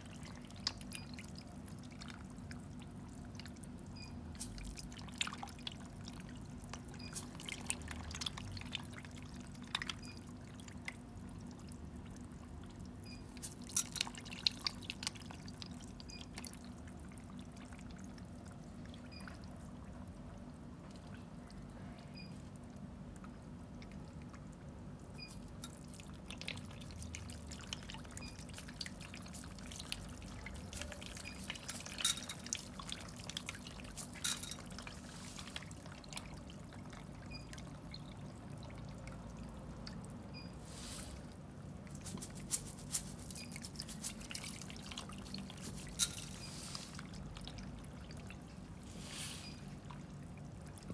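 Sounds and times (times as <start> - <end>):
fish splashing in water: 25.3 - 50.9.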